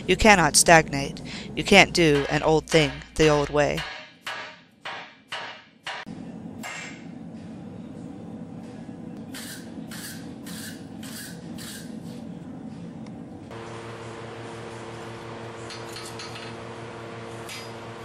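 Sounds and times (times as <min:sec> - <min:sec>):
sledgehammers striking hot steel: 0:02.1 - 0:06.9.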